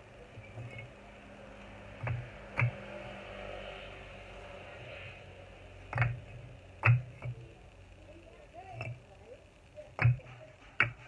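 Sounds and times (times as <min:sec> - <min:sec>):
bricks clacking together: 0:02.0 - 0:02.9, 0:05.9 - 0:07.4, 0:10.0 - 0:11.0.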